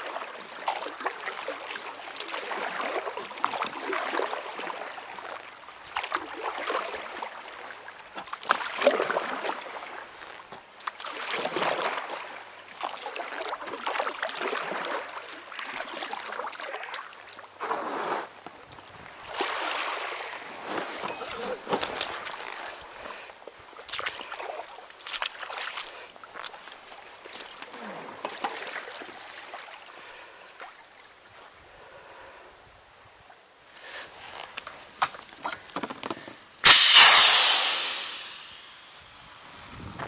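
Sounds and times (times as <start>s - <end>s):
paddle blades splashing water: 0.0s - 18.5s, 19.2s - 29.8s.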